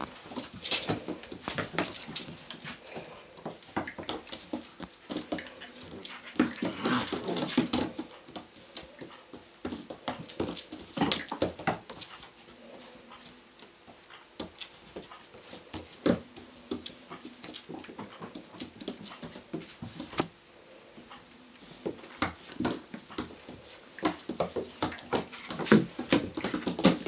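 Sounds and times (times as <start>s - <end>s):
puppy vocal noises: 0.2s - 13.5s.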